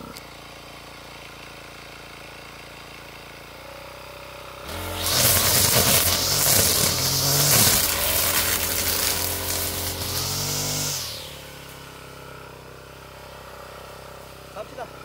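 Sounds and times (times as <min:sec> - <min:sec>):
brush cutter idling: 0:00.0 - 0:15.0
brush cutter whining: 0:04.5 - 0:15.0.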